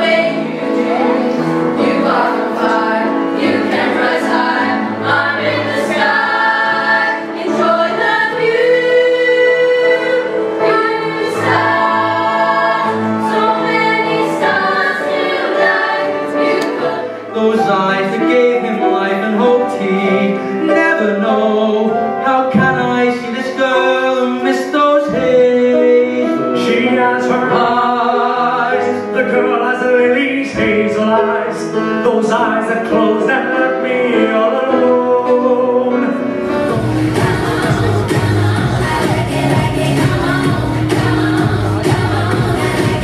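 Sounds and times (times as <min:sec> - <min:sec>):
pop dance music: 0:36.6 - 0:43.0.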